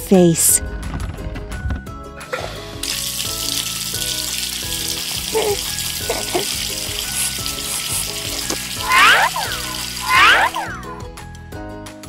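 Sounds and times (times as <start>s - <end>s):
background music: 0.0s - 12.0s
running tap water: 2.4s - 11.0s.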